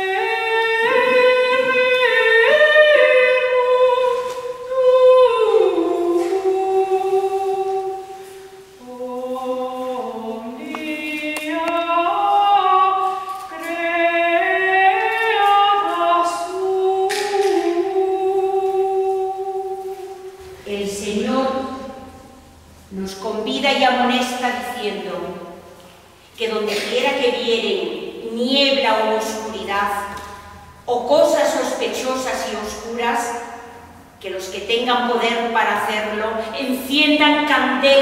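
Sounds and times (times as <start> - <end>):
women's choir singing: 0.0 - 22.3.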